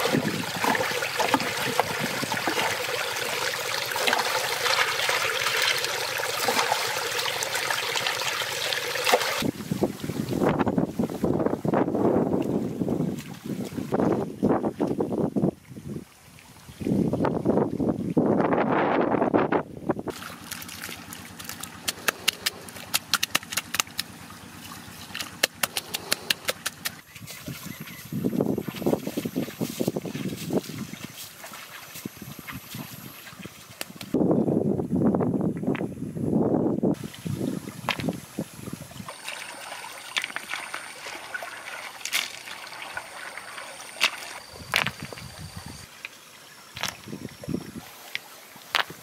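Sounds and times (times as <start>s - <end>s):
shallow water splashing: 0.0s - 11.4s, 20.1s - 34.2s, 37.0s - 49.0s
hands slapping wet concrete: 20.1s - 24.1s, 25.1s - 27.0s
stones knocking: 25.1s - 27.0s, 37.9s - 38.1s, 44.0s - 45.3s, 48.7s - 49.0s.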